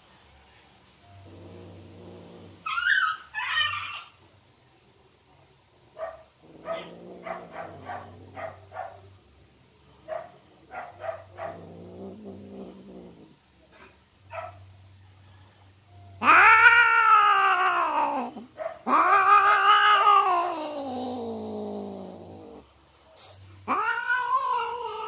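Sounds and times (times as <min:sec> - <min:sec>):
cat growling low: 0:01.0 - 0:03.2, 0:06.4 - 0:08.7, 0:10.6 - 0:14.0, 0:16.2 - 0:25.0
cat chirp-like calls: 0:16.1 - 0:22.6, 0:23.6 - 0:25.0.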